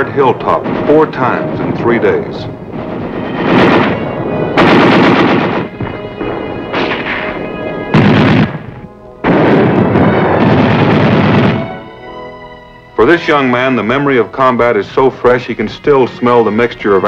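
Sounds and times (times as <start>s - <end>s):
faint music score: 0.0s - 17.0s
gunfire bursts: 0.5s - 11.8s.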